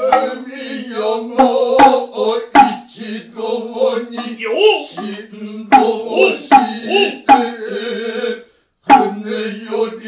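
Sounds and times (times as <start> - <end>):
shoulder drum strikes: 0.0 - 0.5, 1.3 - 2.9, 4.1 - 7.7, 8.9 - 9.4
man chanting on a low pitch: 4.2 - 7.8.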